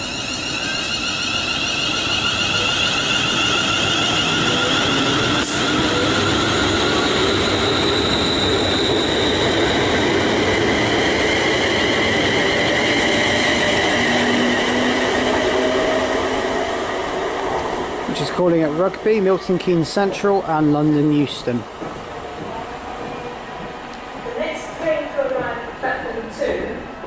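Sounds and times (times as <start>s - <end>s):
electric train motors whining: 0.0s - 19.3s
wheels rumbling on rail: 0.0s - 26.6s.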